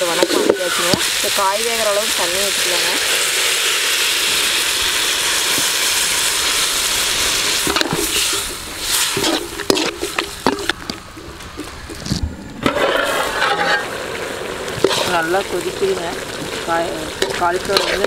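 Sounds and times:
water sizzling in hot pan: 0.0s - 11.6s, 12.6s - 18.0s
metal spoon scraping pan: 12.6s - 13.9s, 17.2s - 18.0s.

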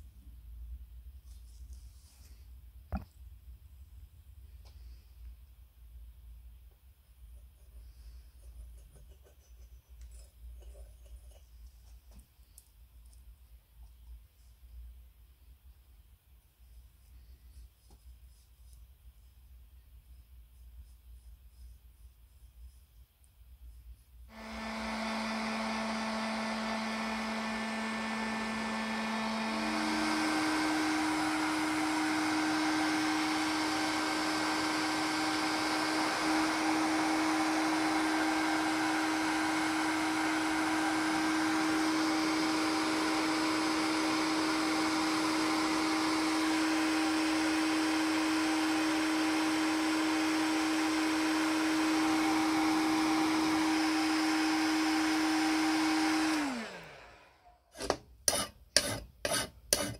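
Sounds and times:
hot-air gun blowing: 24.3s - 59.9s.

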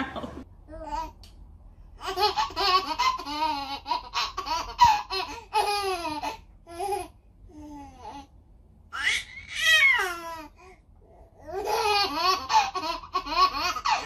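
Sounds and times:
baby laughing: 2.0s - 7.1s, 11.4s - 14.0s.

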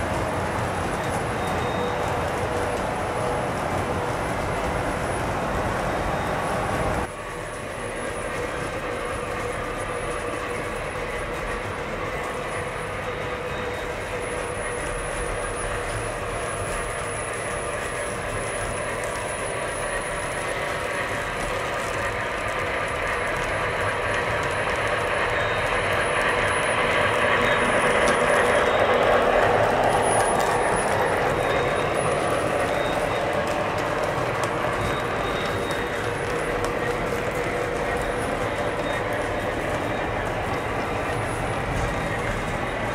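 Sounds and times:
model train wheels rumbling: 0.0s - 42.9s.

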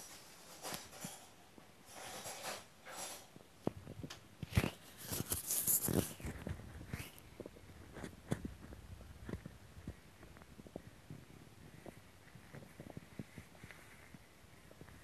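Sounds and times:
stomach growling and gurgling: 6.1s - 15.0s.

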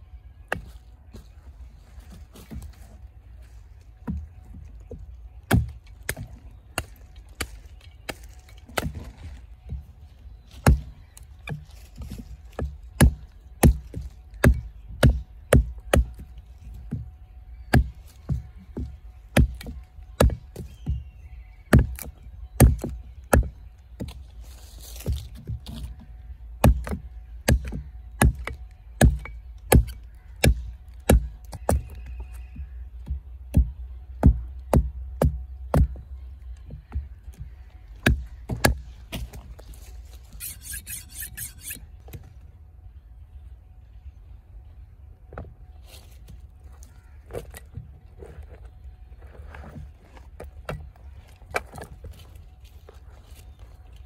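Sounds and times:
knife chopping wood: 4.9s - 9.8s, 10.5s - 16.3s, 16.9s - 21.1s, 21.7s - 24.2s, 24.9s - 26.0s, 26.6s - 36.0s, 36.7s - 39.7s.

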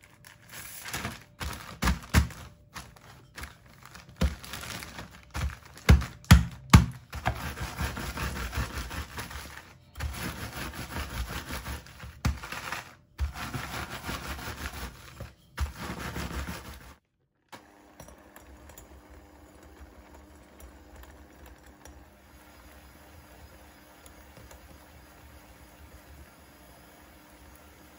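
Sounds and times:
plastic bag crinkling: 0.0s - 7.3s
electric hand mixer hum: 17.6s - 27.9s.

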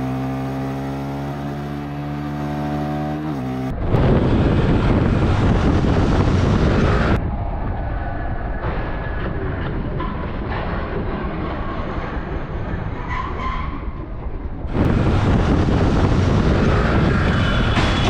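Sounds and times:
wind and road noise: 0.0s - 18.0s.

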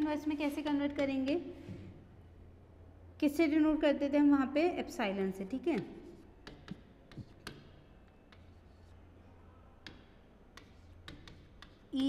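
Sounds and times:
faint room hum: 0.0s - 12.0s
chalk tapping on chalkboard: 5.5s - 9.0s, 9.8s - 12.0s.

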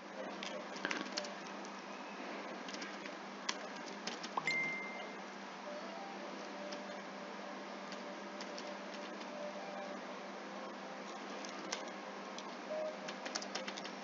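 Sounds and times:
background hum and hiss: 0.0s - 14.0s
computer keyboard typing: 0.4s - 1.6s, 2.7s - 4.9s, 7.9s - 9.4s, 11.4s - 14.0s.

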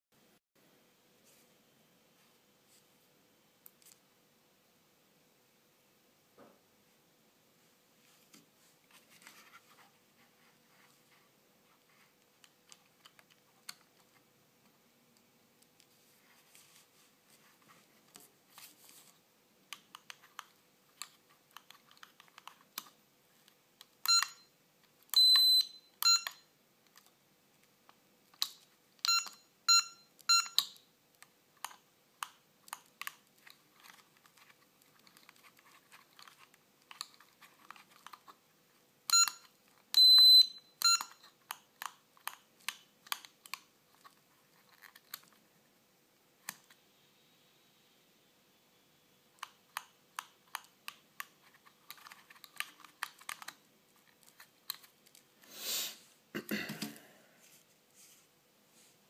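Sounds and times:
short electronic beeps: 25.2s - 26.4s, 40.0s - 41.2s.

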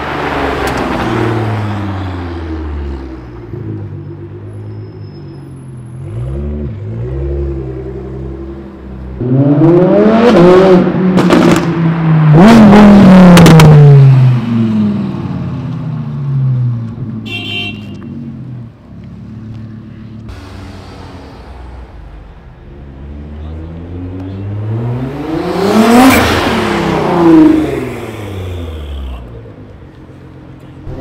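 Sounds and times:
sports car engine revving: 6.0s - 14.9s, 20.3s - 29.4s.

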